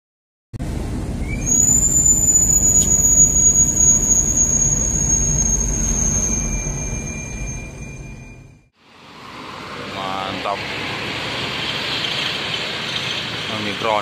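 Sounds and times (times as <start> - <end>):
deep engine-like rumble: 0.6 - 8.7
high steady whine: 0.6 - 8.7.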